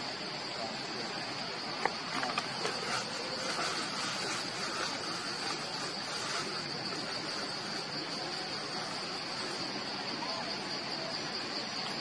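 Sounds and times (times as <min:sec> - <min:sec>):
constant hiss: 0:00.0 - 0:12.0
high-pitched insect drone: 0:00.0 - 0:12.0.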